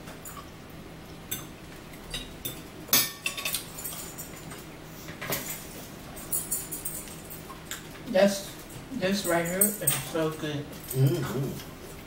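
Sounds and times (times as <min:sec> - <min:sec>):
cutlery clinking on plates: 0:01.3 - 0:07.9.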